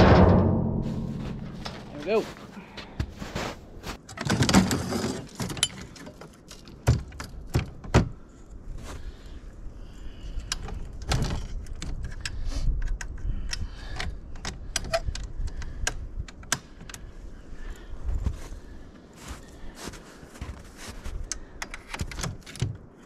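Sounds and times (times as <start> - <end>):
metal frame knocks and rattles: 0.0 - 2.5.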